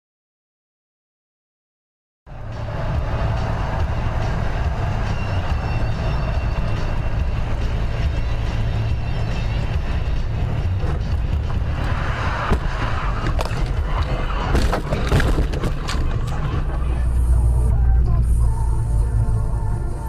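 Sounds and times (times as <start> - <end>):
car road and engine rumble: 2.3 - 20.0
car crash knocks and bangs: 12.4 - 16.4.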